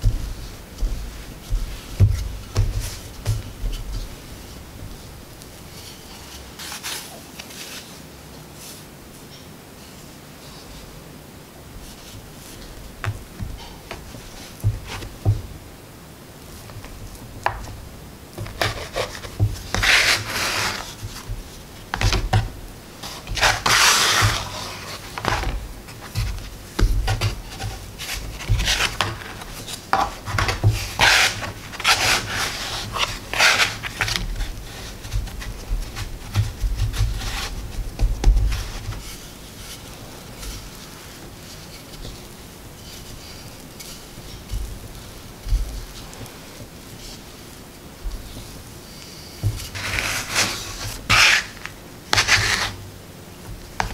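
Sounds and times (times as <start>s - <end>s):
dough pieces thumping: 0.0s - 7.2s, 11.8s - 15.8s, 16.4s - 47.3s, 49.3s - 53.9s
scraper scraping dough on board: 18.3s - 39.2s, 49.2s - 52.8s.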